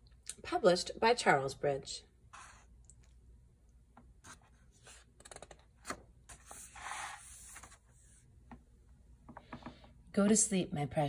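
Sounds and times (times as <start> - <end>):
hand sliding over paper: 2.3 - 2.7, 6.3 - 8.2
paper page rustling: 4.2 - 8.1.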